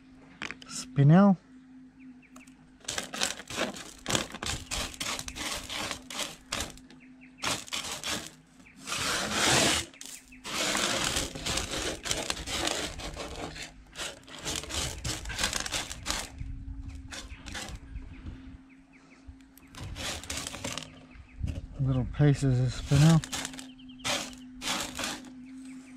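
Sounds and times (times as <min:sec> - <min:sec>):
gravel scraping on metal table: 0:02.8 - 0:17.8, 0:19.7 - 0:21.0, 0:22.4 - 0:25.3.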